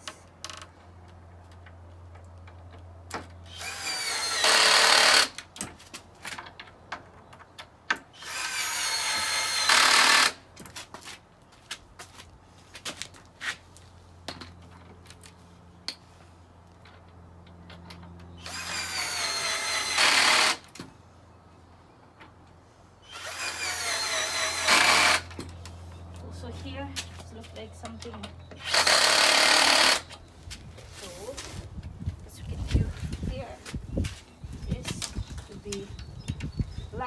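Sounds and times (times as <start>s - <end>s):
cordless drill driving screws: 3.5s - 5.4s, 8.2s - 10.4s, 18.4s - 20.7s, 23.1s - 25.4s, 28.6s - 30.1s.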